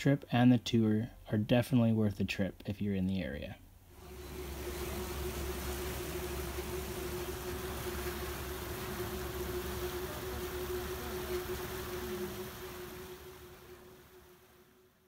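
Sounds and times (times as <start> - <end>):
boat engine humming: 3.9 - 15.0.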